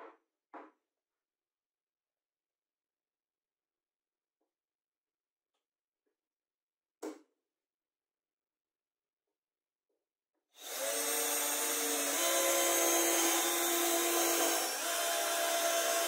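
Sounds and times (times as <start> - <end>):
electric drill boring into wood: 10.6 - 16.0.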